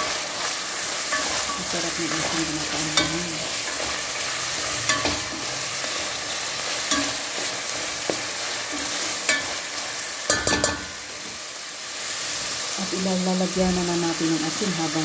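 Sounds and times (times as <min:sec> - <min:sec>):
food sizzling in oil: 0:00.0 - 0:15.0
spatula scraping and knocking on pan: 0:10.3 - 0:11.4.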